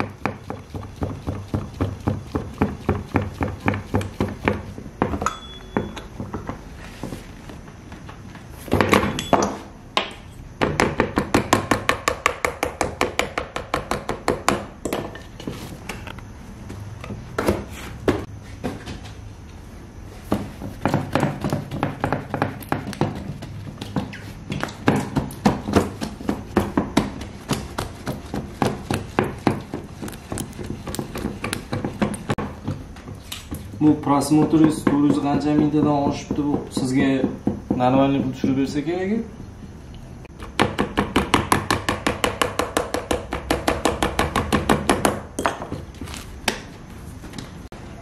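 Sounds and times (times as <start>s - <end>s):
bread stamp tapping dough: 0.0s - 6.6s, 20.3s - 33.2s, 34.1s - 38.7s, 40.4s - 45.8s.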